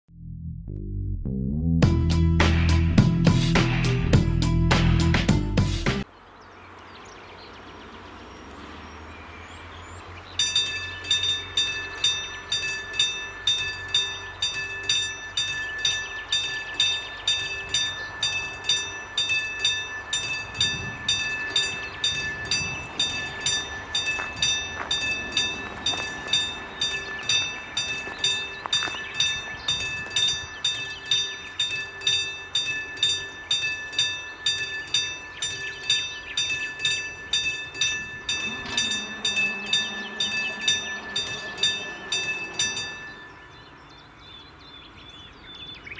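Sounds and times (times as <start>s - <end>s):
level crossing warning bell: 10.2s - 45.2s.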